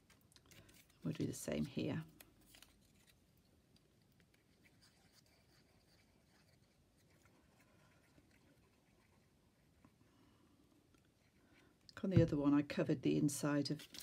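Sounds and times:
faint ticks of paper handling: 0.0s - 10.0s.

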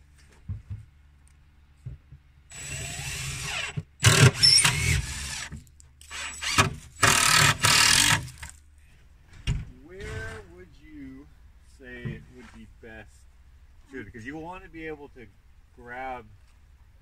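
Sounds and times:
cordless drill into plywood: 2.5s - 8.5s.

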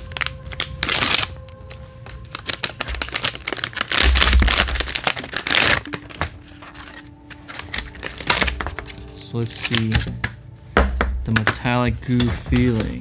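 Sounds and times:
plastic bag crinkling and tearing: 0.0s - 10.2s.

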